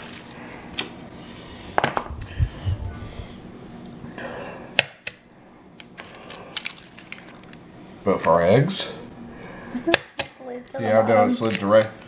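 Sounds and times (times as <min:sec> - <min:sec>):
dull low thumps: 0:02.0 - 0:03.5.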